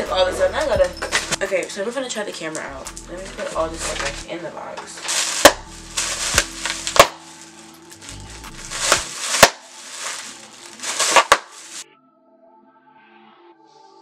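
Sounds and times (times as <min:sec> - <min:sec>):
faint music: 0:00.0 - 0:14.0
plastic bags crinkling: 0:02.5 - 0:04.2, 0:05.0 - 0:11.8.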